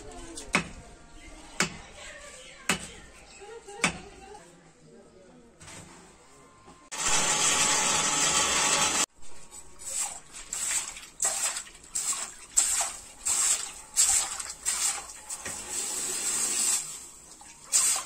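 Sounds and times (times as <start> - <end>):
hot steel hissing in water: 12.0 - 18.0.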